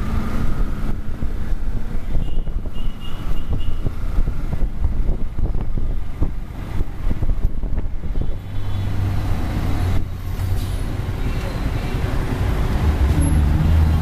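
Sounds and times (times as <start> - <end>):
wind buffeting microphone: 0.0 - 10.3.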